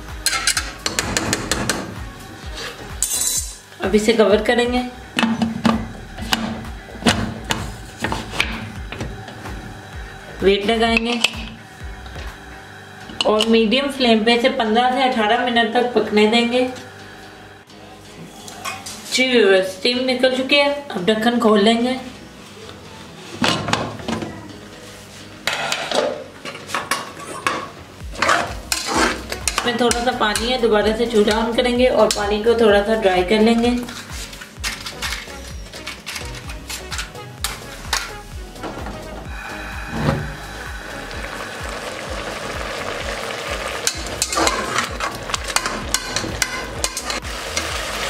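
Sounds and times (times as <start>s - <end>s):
metal lid scraping and clanking: 25.4s - 30.5s, 33.8s - 39.2s, 43.8s - 47.8s
metal spatula scraping a pot: 28.2s - 30.6s
greens bubbling and sizzling: 40.4s - 48.0s.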